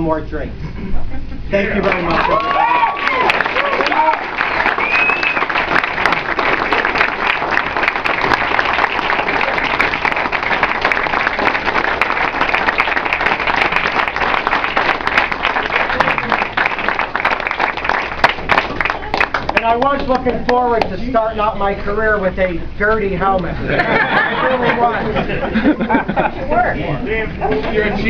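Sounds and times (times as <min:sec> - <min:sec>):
crowd applauding: 0:01.8 - 0:20.8.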